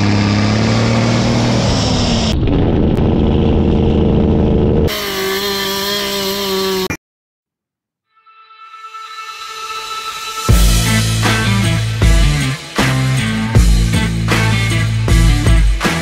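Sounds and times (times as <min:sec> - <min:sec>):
diesel truck engine running: 0:00.0 - 0:04.9
chainsaw cutting log: 0:04.9 - 0:07.0.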